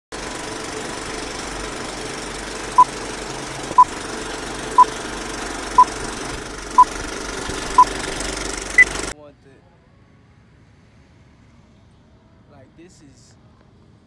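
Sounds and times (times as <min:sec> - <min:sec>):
film projector whirring: 0:00.1 - 0:09.1.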